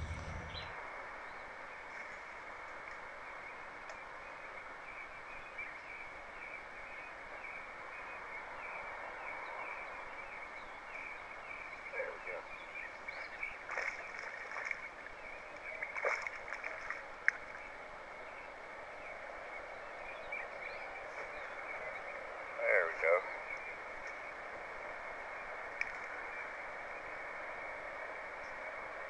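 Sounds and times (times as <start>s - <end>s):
high-pitched outdoor drone: 0.0s - 0.7s
fish splashing in water: 13.5s - 17.7s.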